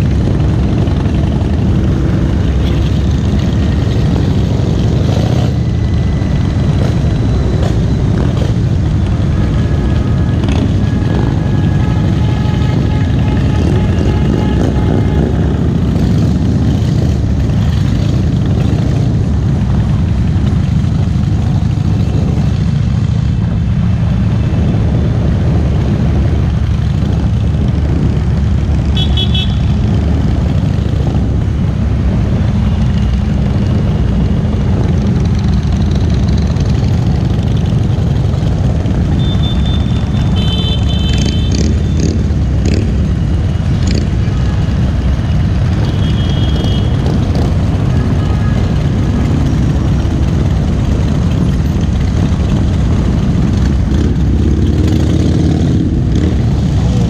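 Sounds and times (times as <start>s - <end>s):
motorcycle engine rumbling: 0.0s - 57.0s
other motorcycles: 0.0s - 57.0s
high-pitched horn toots: 9.6s - 15.7s.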